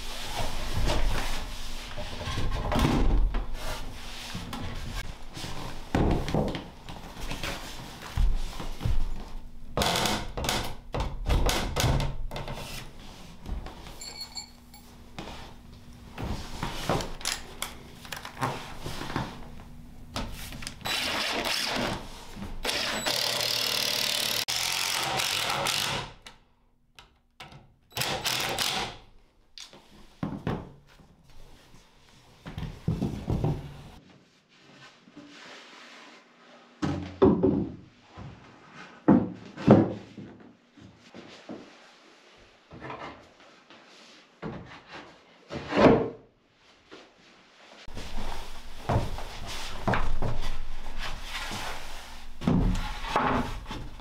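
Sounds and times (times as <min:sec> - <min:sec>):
cordless drill driving a screw: 0:20.8 - 0:21.8, 0:22.6 - 0:26.1.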